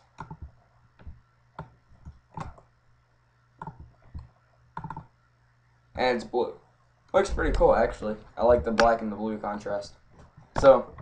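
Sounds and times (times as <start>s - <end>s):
faint low hum: 0.0s - 11.0s
computer mouse clicking: 0.1s - 2.7s, 3.6s - 5.1s.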